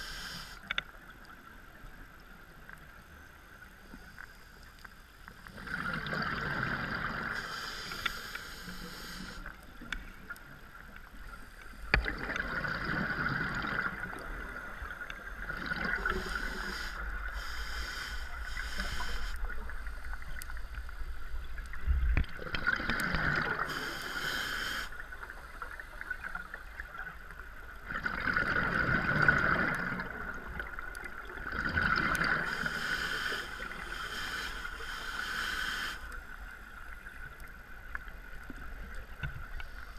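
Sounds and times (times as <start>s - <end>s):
diver breathing through regulator: 7.3s - 9.5s, 15.8s - 19.5s, 23.5s - 25.0s, 32.3s - 36.2s.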